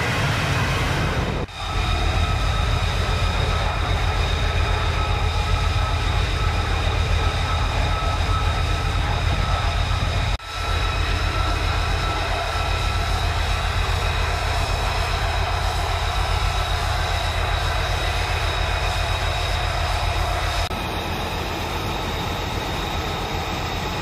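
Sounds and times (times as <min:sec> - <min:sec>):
jet engine rumble and whine: 0:00.0 - 0:24.0.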